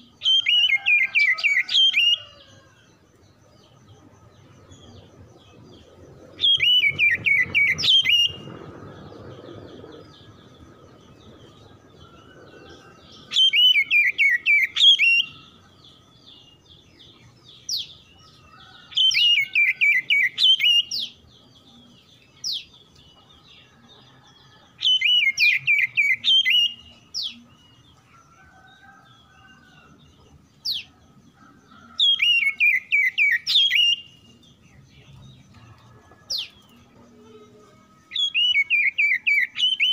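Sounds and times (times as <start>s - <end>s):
bird singing whistled phrases: 6.4s - 8.5s, 38.1s - 39.9s.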